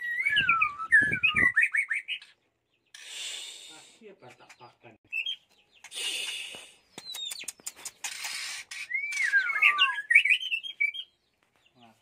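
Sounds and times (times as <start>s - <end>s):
bird chirp: 0.0s - 12.0s
raspy hissing bursts: 3.0s - 4.1s
bird clicks: 6.2s - 8.4s.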